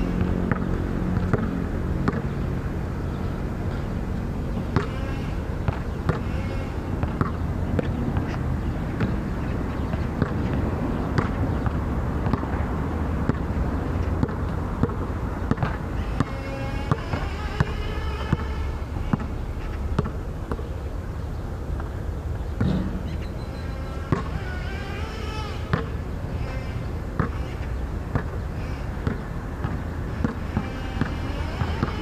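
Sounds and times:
basketball bouncing on hard court: 0.2 - 2.4, 4.6 - 20.8, 24.0 - 27.5, 29.0 - 32.0.

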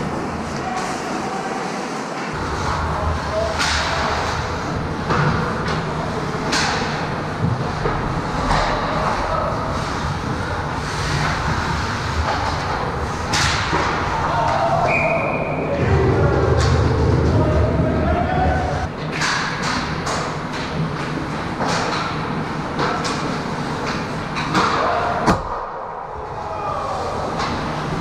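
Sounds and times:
players' voices: 0.0 - 18.9, 20.8 - 28.0
referee's whistle: 14.9 - 15.7.

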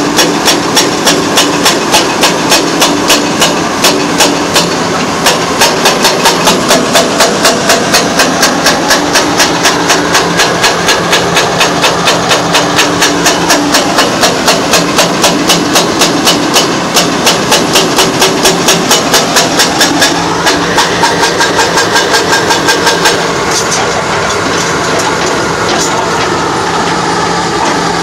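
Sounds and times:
diesel engine running: 0.0 - 28.0
hydraulic hammer pounding rock: 0.0 - 28.0.

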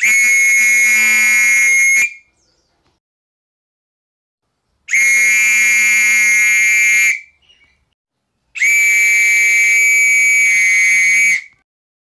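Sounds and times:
metal whistle blasts: 0.0 - 2.3, 4.9 - 7.4, 8.6 - 11.6.

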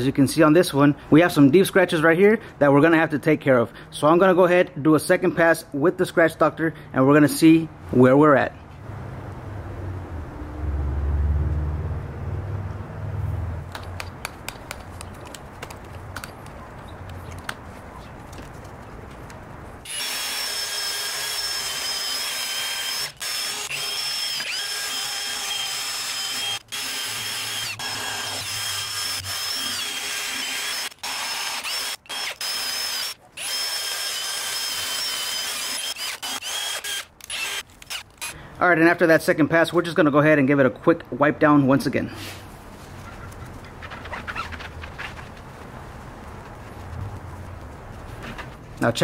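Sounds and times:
cordless drill motor whining: 19.9 - 38.3.

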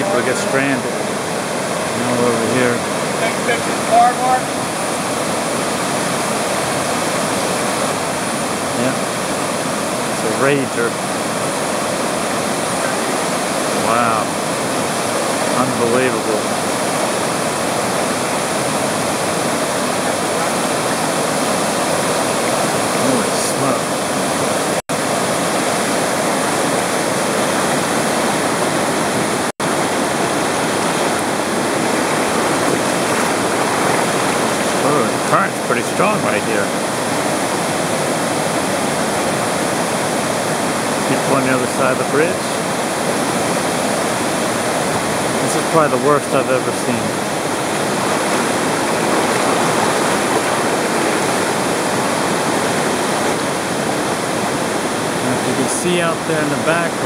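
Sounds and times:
floodwater rushing: 0.0 - 57.0.

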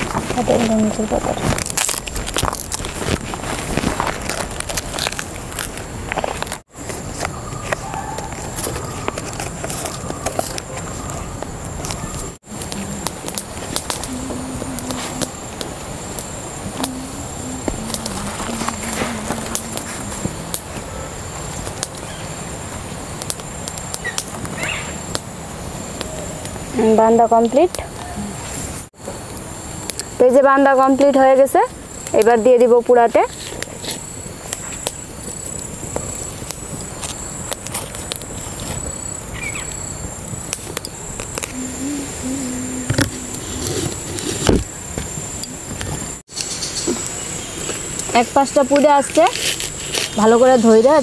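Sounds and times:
wood fire crackling and popping: 0.0 - 10.7, 11.4 - 20.8, 21.4 - 26.7, 33.6 - 39.0
leaves rustling and crinkling: 0.0 - 51.0
steady hiss: 0.0 - 51.0
high insect buzz: 10.4 - 27.6, 33.2 - 51.0.

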